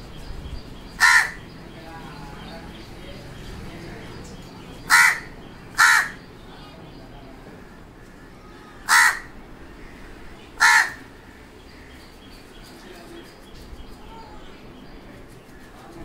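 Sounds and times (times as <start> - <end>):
crow cawing: 1.0 - 1.5, 4.9 - 6.3, 7.6 - 12.1.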